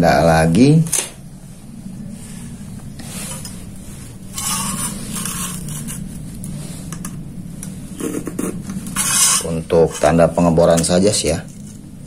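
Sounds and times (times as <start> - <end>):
metal square scraping steel plate: 4.3 - 6.2, 8.0 - 10.2.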